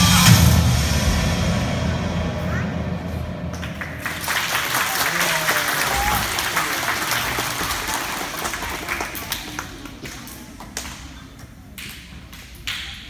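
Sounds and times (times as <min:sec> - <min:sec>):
children applauding: 0:03.6 - 0:11.9.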